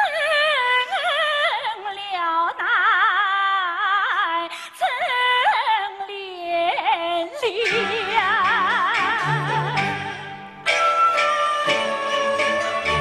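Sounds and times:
woman singing opera aria: 0.0 - 10.5, 11.1 - 13.0.

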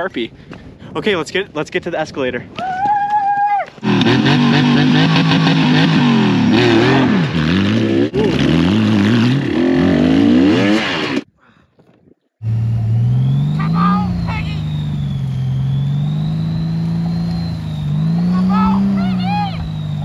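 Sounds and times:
motorcycle engines revving: 3.8 - 11.3, 12.4 - 20.0.

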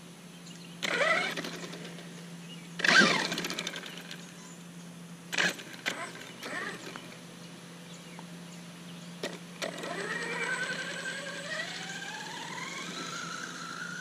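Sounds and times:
electric toy truck motor whining: 0.8 - 1.9, 2.8 - 4.1, 5.4 - 7.0, 9.2 - 14.0.

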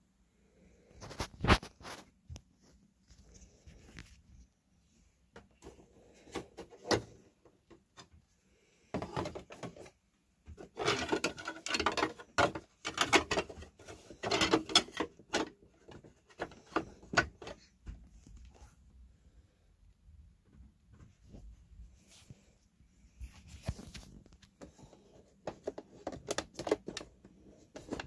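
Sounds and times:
hard plastic toy clicking and rattling: 10.6 - 17.5.

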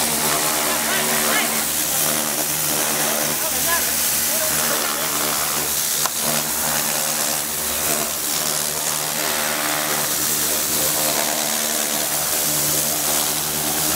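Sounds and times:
pump motor hum: 0.0 - 13.9
water jet hissing against wood: 0.0 - 13.9.

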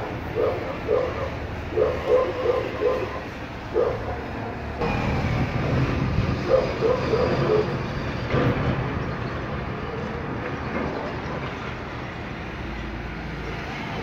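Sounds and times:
road traffic: 0.0 - 14.0.

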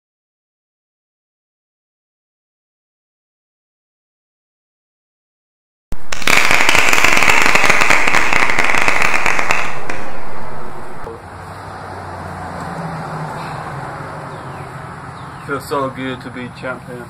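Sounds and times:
loud dense crackling: 6.0 - 11.1.

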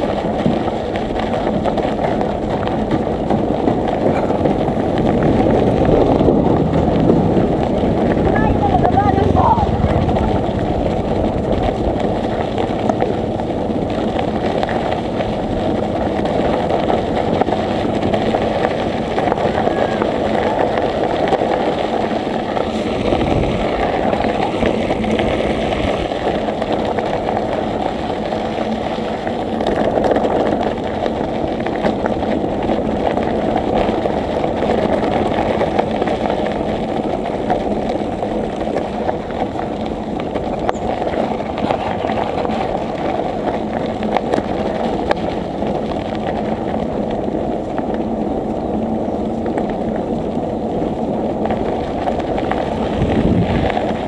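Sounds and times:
bicycle tyres rolling on road: 0.0 - 54.0
air rushing past microphone: 3.8 - 29.6.

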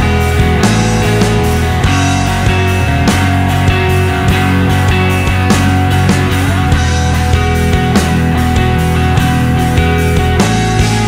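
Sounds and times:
rock music: 0.0 - 11.0.

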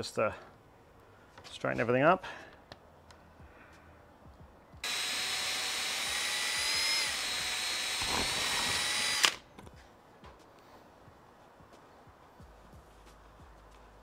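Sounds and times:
cordless drill motor whine: 4.8 - 9.4
drill click: 4.8 - 9.4.

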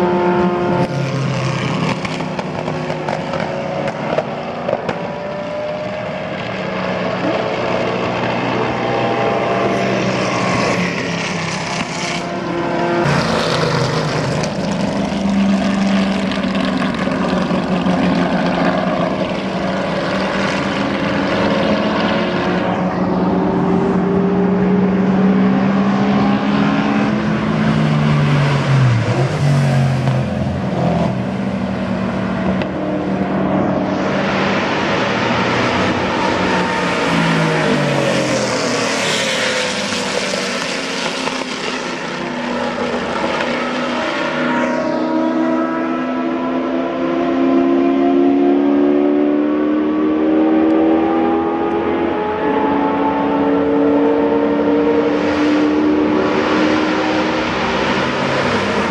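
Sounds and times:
racing car engines passing: 0.0 - 58.9.

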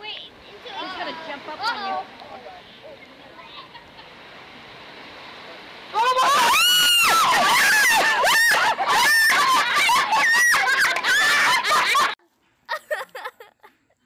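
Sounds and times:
boy screaming: 5.9 - 11.7.

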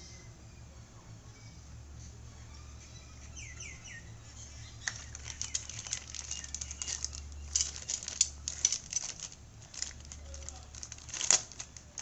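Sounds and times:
low steady hum: 0.0 - 12.0
plastic bag crinkling: 4.8 - 12.0.

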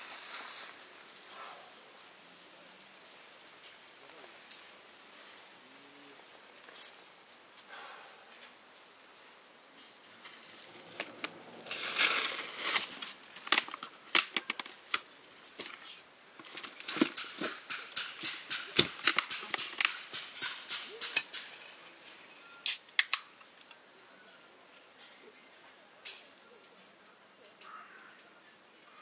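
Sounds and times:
rustling: 0.0 - 23.6
sharp clicks and light knocks: 12.7 - 22.2.

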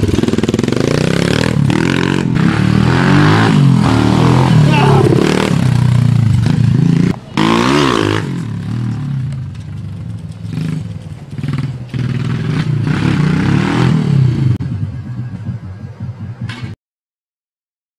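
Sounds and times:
minibike engine revving: 0.0 - 16.5.

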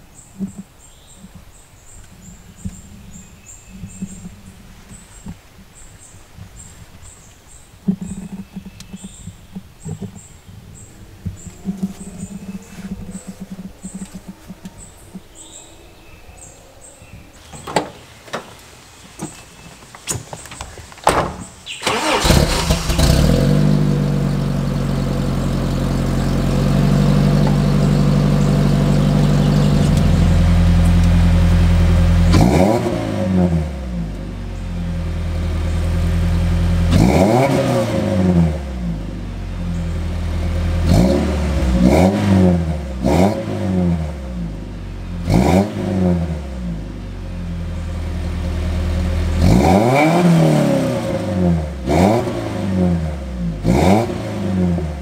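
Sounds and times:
engine revving in throttle blips: 7.9 - 15.6, 21.7 - 55.0
car engine idling: 21.0 - 41.9, 46.3 - 51.9.

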